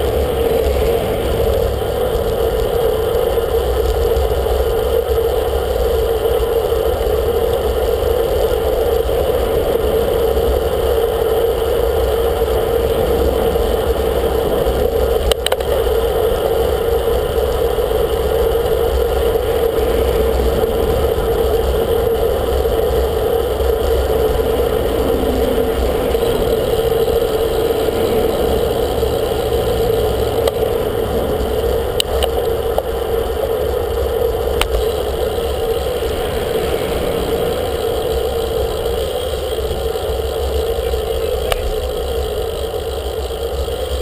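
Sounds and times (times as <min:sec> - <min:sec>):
constant droning hum: 0:00.0 - 0:44.0
road rumble: 0:00.0 - 0:44.0
wind rush: 0:08.5 - 0:40.0.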